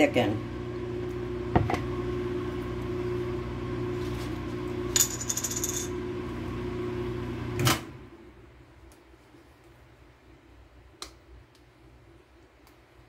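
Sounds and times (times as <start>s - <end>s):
microwave oven humming: 0.0s - 8.8s.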